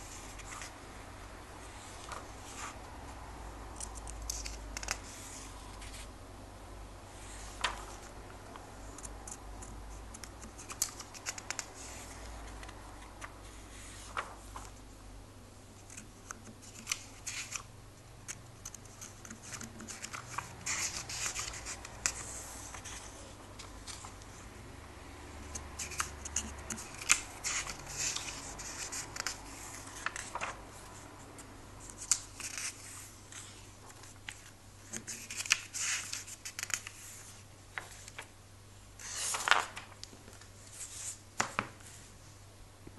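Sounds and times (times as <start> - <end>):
comic book pages turning: 7.3 - 8.1, 10.2 - 14.8, 18.7 - 24.2, 25.5 - 31.0, 31.8 - 38.3, 39.0 - 42.1
crisp paper rustling: 7.3 - 8.2, 10.3 - 14.8, 18.6 - 24.3, 25.5 - 31.1, 31.8 - 38.3, 39.0 - 42.0.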